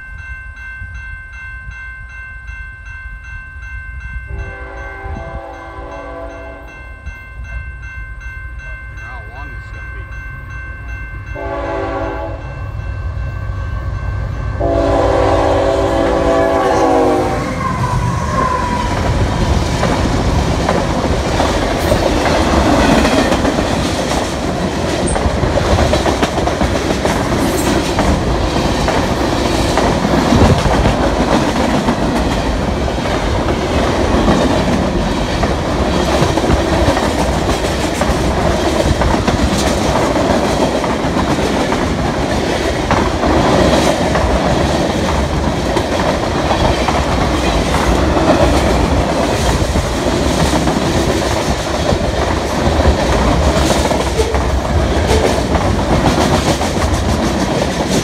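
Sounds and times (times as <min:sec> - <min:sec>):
locomotive horn blasts: 0:04.3 - 0:06.7, 0:11.4 - 0:12.4, 0:14.6 - 0:17.7.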